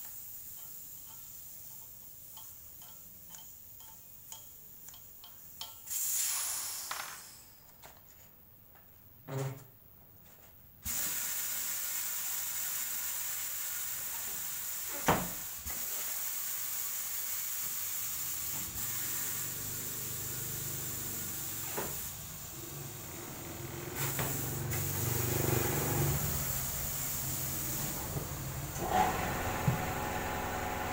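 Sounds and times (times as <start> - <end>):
compressed air hissing: 5.9 - 7.6, 10.8 - 30.9.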